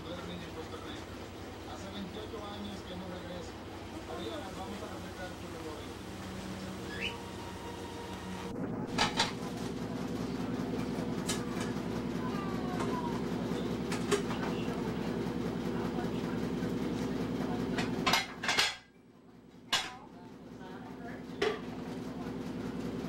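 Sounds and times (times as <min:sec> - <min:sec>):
electric motor humming: 0:00.0 - 0:17.8.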